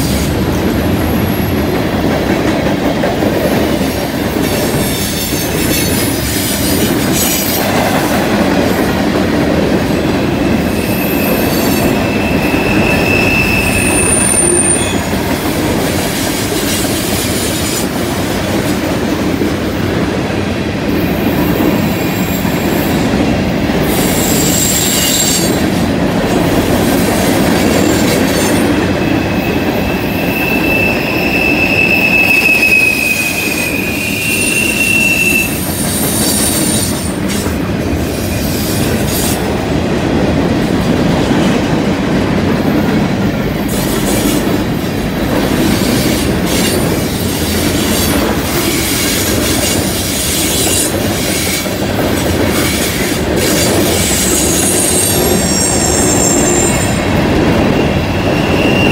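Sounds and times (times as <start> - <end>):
steel wheels rumbling on rail: 0.0 - 58.9
high-pitched wheel squeals: 10.7 - 15.1, 27.8 - 37.0, 54.2 - 58.9.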